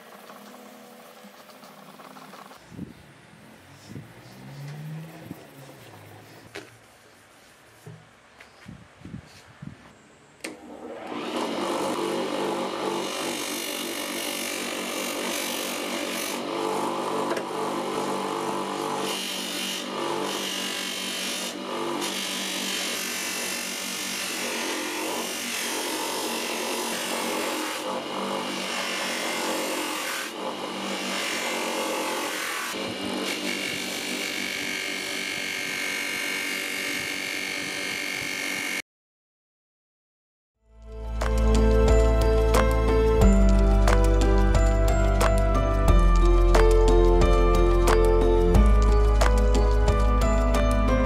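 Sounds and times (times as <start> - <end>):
bench grinder motor hum: 10.5 - 38.8.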